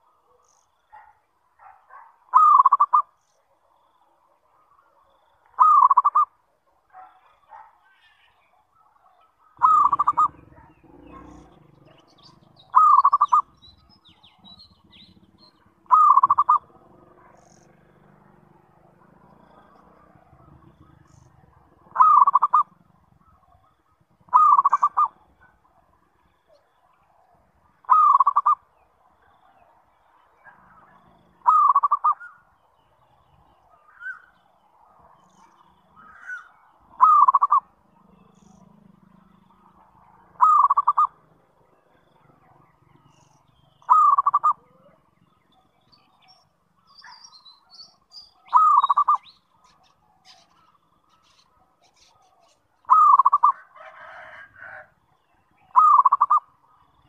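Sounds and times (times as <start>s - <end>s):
dove cooing: 0.9s - 3.1s, 5.6s - 6.3s, 9.6s - 17.8s, 18.7s - 25.9s, 27.8s - 28.6s, 30.7s - 32.4s, 36.0s - 38.9s, 39.5s - 41.3s, 43.6s - 45.0s, 48.4s - 50.6s, 51.9s - 54.9s, 55.7s - 56.5s.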